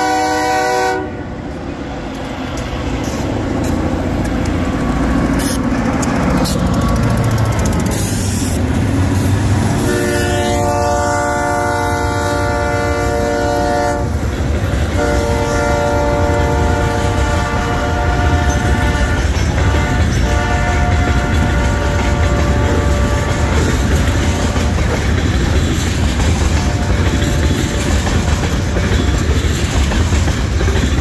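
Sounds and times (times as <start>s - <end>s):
train horn blasts: 0.0s - 1.4s, 9.7s - 14.3s, 14.9s - 24.8s, 26.6s - 27.3s
diesel locomotive engine running: 0.0s - 31.0s
freight cars rolling: 1.2s - 31.0s.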